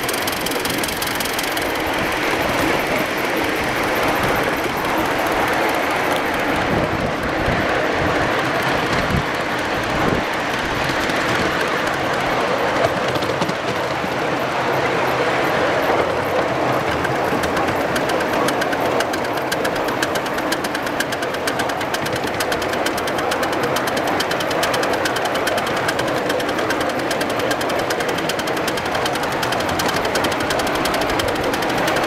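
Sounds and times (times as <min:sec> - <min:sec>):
steam locomotive chuffing: 0:00.0 - 0:32.0
train wheels clattering on rails: 0:00.0 - 0:32.0.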